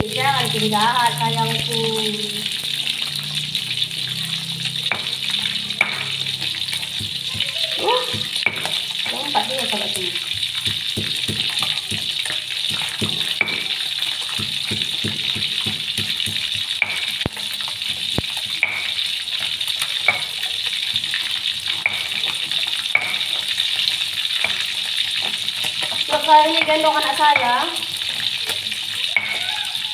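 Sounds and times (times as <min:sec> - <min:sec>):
oil sizzling in a pan: 0:00.0 - 0:29.9.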